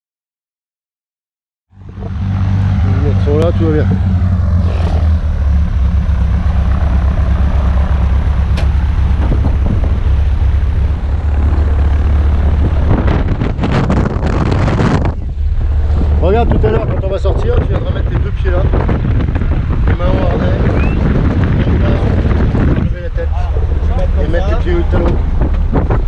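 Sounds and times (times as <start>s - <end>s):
plane engine idling: 1.7s - 26.0s
knocks and rustling: 24.9s - 26.0s.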